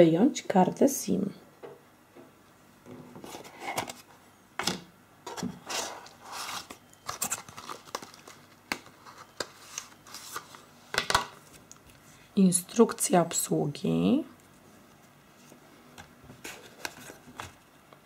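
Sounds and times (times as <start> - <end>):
cardboard packaging rustling: 5.3 - 12.0, 16.3 - 17.7.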